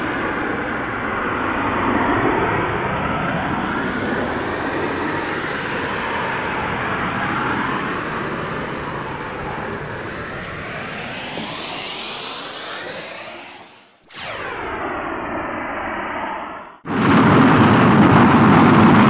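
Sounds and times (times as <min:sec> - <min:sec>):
rocket engines roaring: 0:06.1 - 0:19.0.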